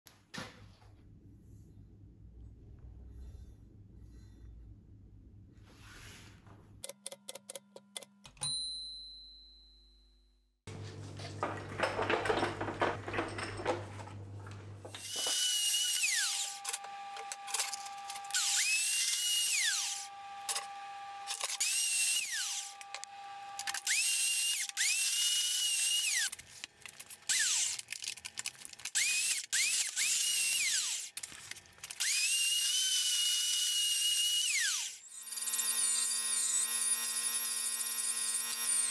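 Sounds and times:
ringing ding: 0:08.4 - 0:10.3
band saw motor whine: 0:14.9 - 0:26.4.

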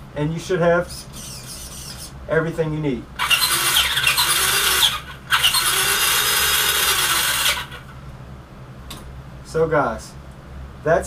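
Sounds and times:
electric motor whirring wheels spinning: 0:01.2 - 0:02.1, 0:03.2 - 0:07.9.

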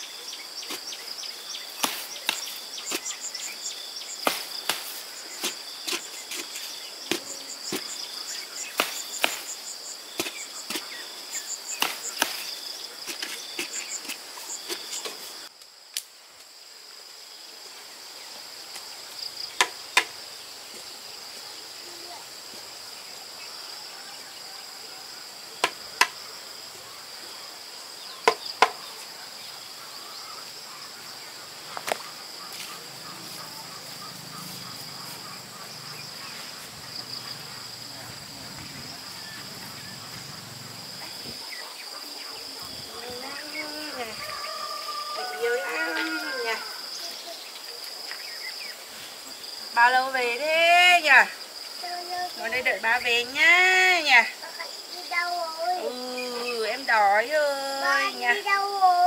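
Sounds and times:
insects trilling: 0:00.0 - 0:59.0
bamboo pole knocking into soil: 0:04.2 - 0:08.0, 0:08.8 - 0:09.6.

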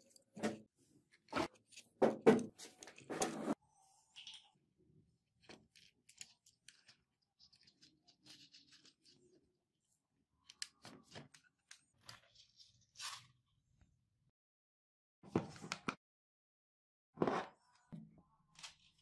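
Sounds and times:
small clicks and scrapes of handling: 0:00.0 - 0:04.5, 0:05.4 - 0:09.5, 0:10.4 - 0:13.4, 0:18.5 - 0:19.0.

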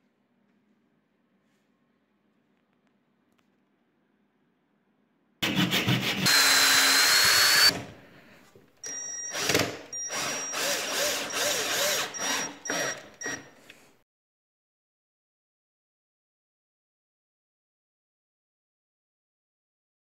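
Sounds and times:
power drill whining: 0:06.1 - 0:07.9, 0:08.8 - 0:13.8.

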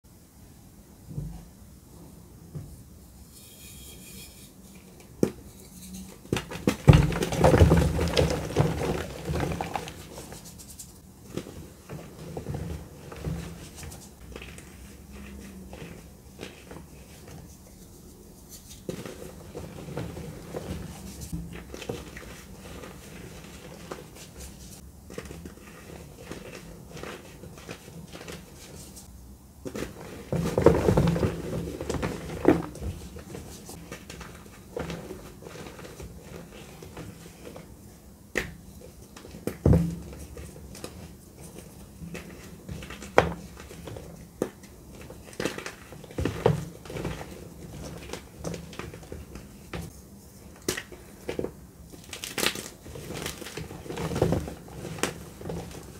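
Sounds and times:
hands crushing chalk blocks: 0:05.0 - 0:29.0, 0:38.3 - 0:49.9, 0:50.5 - 0:55.9.

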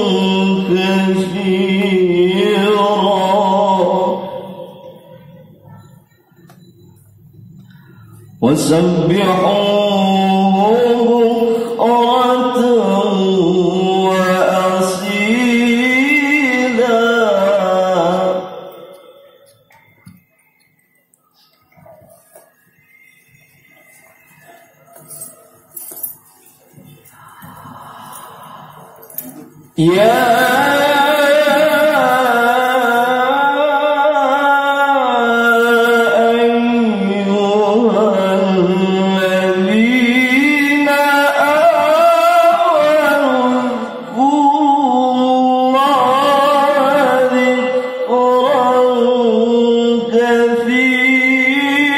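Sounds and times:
man reciting melodically over loudspeaker: 0:00.0 - 0:51.9.

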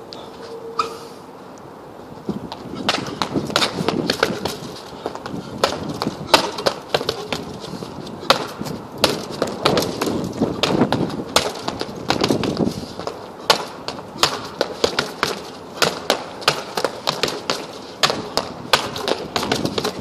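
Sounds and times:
punches hitting heavy bag: 0:05.6 - 0:07.5, 0:08.2 - 0:12.4, 0:13.5 - 0:20.0.

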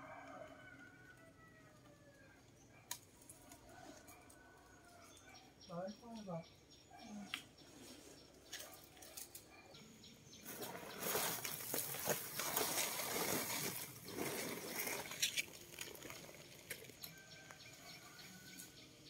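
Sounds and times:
plastic sack rustling and crinkling: 0:10.4 - 0:17.0.

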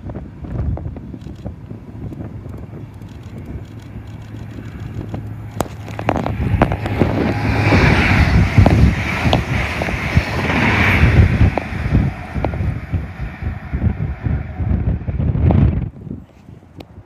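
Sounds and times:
wind buffeting microphone: 0:00.0 - 0:17.0
train rushing past: 0:03.2 - 0:15.9.

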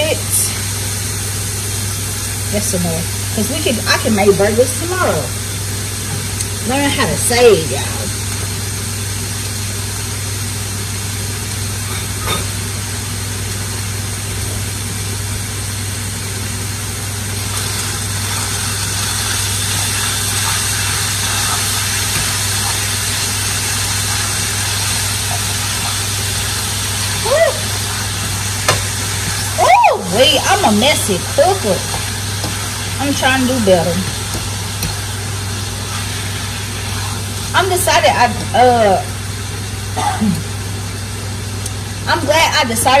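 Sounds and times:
meat sizzling in a skillet: 0:00.0 - 0:42.0
utensil stirring meat in pan: 0:17.4 - 0:37.5.

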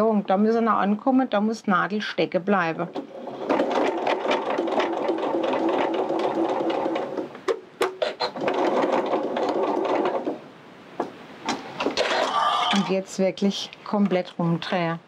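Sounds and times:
sewing machine stitching: 0:02.8 - 0:10.5
sewing machine clicks: 0:02.9 - 0:10.4.

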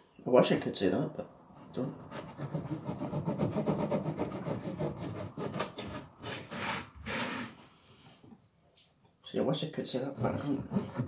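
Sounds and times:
knife sawing through bread: 0:01.7 - 0:07.6, 0:10.2 - 0:11.0.

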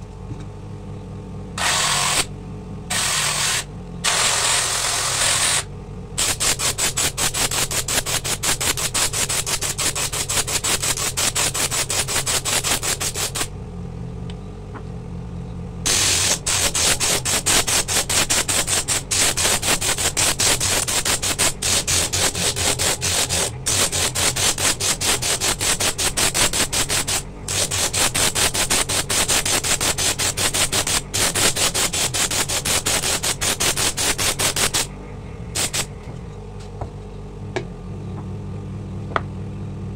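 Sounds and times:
motor hum: 0:00.0 - 0:39.9
shell grinding on sanding disc: 0:01.6 - 0:02.3, 0:02.9 - 0:13.5, 0:15.9 - 0:34.9, 0:35.6 - 0:35.9.

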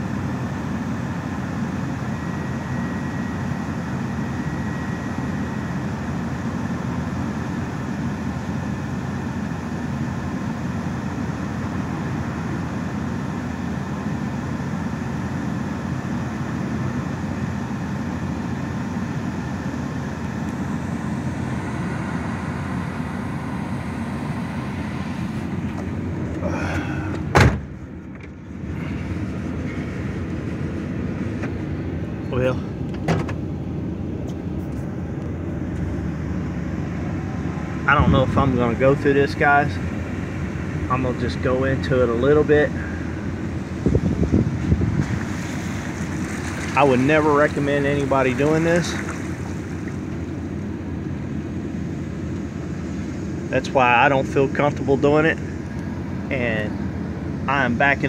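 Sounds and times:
vehicle engine idling: 0:00.0 - 0:58.0.

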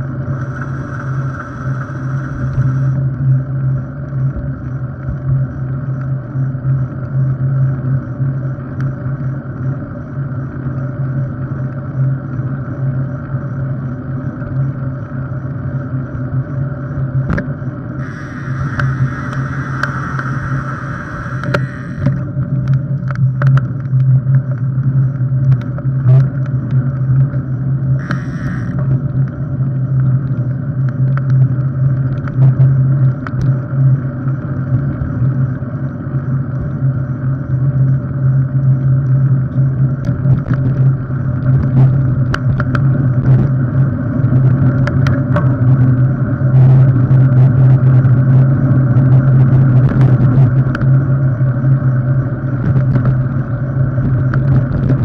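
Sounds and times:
bike tyres and drivetrain humming: 0:00.0 - 0:55.0
loud hiss: 0:00.3 - 0:03.0, 0:18.0 - 0:22.0.

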